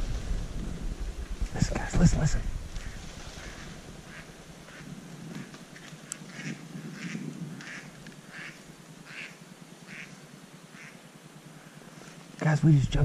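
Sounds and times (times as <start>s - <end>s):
distant ducks quacking: 1.6s - 11.9s.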